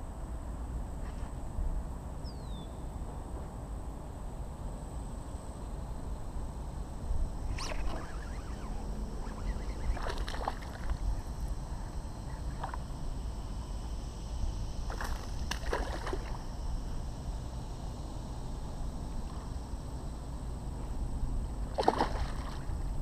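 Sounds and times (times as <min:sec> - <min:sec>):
steady low rumble: 0:00.0 - 0:23.0
fish splashing at water surface: 0:09.9 - 0:11.0, 0:14.9 - 0:16.4, 0:21.8 - 0:22.7.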